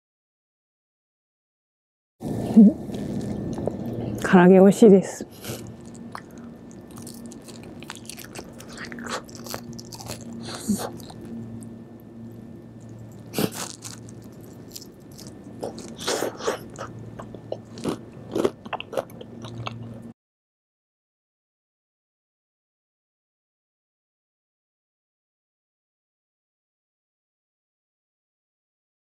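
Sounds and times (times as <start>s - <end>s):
faint low hum: 2.2s - 20.1s
chewing crispy fried chicken: 5.3s - 11.6s, 12.8s - 20.1s.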